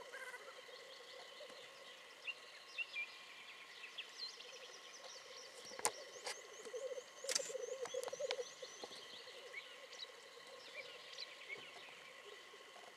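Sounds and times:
birds chirping: 0.0s - 12.9s
black grouse bubbling coo: 5.5s - 12.9s
sharp clicks: 7.3s - 8.4s.

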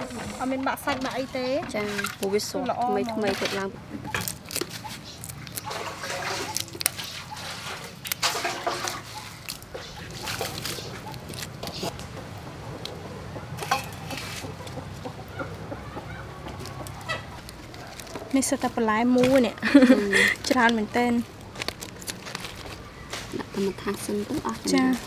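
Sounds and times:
shrimp shells cracking: 4.1s - 12.0s, 16.5s - 19.5s, 21.4s - 22.9s
wet flesh squishing: 4.1s - 12.0s.

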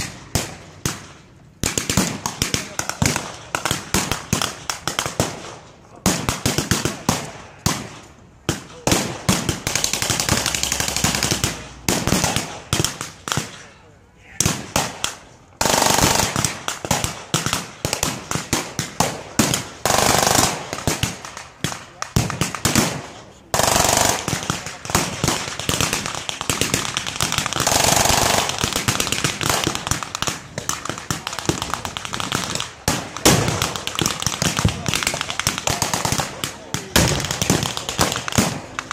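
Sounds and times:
rifles and machine guns firing blanks: 0.0s - 13.8s, 14.4s - 38.9s
pyrotechnic blast: 14.4s - 38.9s.

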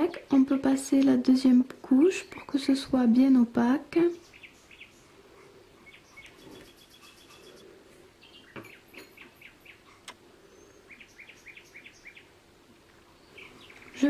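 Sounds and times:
faint bird chirping: 4.0s - 14.0s.

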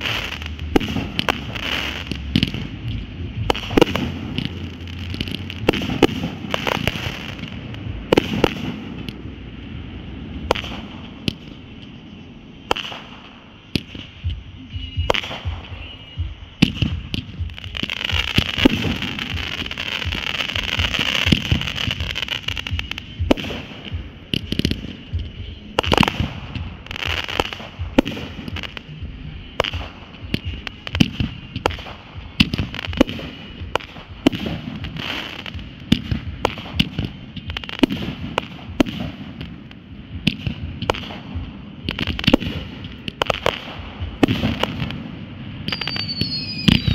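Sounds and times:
firework crackling: 0.0s - 46.9s
firework launches and bursts: 40.2s - 46.9s
gliding firework whistles: 45.6s - 46.9s.

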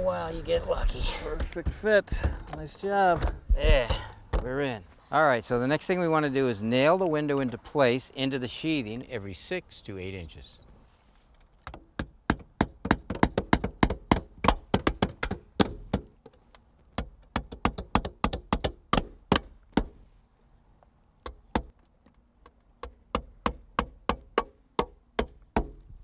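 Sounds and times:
hammer driving nails: 11.7s - 16.1s, 17.0s - 20.0s, 22.8s - 25.9s.

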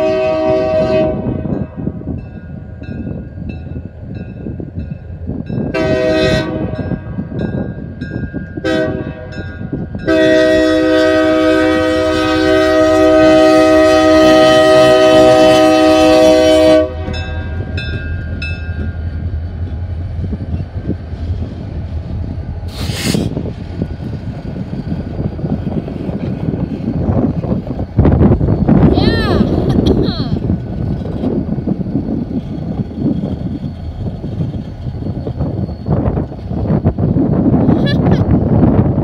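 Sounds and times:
locomotive air horn blast: 0.0s - 1.5s, 5.7s - 6.9s, 8.6s - 9.4s, 10.0s - 17.3s
diesel engines rumbling: 11.1s - 38.8s.

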